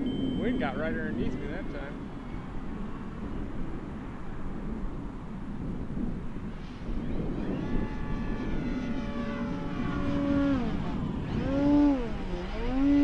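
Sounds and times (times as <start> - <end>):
wind rumble on microphone: 0.0 - 13.0
model plane propeller whine: 6.8 - 13.0.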